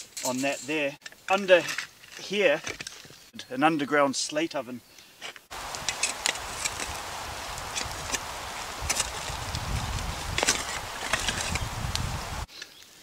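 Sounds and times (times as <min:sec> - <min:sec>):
shovel scraping and knocking: 0:05.2 - 0:07.0, 0:08.8 - 0:09.4, 0:10.3 - 0:11.7
steady hiss: 0:05.5 - 0:13.0.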